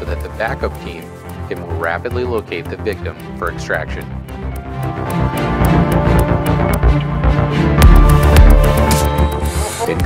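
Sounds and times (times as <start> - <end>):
theme music with ticking beat: 0.0 - 10.0.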